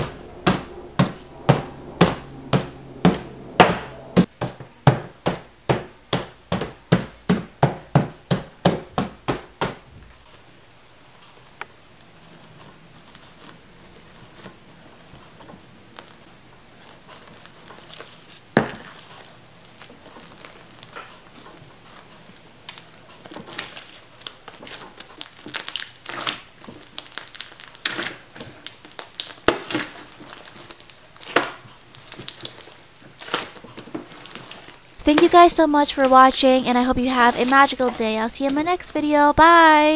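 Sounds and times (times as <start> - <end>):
slime crackling and crunching: 22.7 - 35.4.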